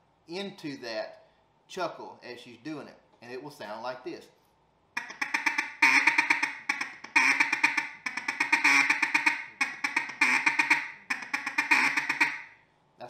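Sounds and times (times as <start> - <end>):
duck call quack: 5.0 - 12.6
duck call ticking notes: 5.0 - 12.6.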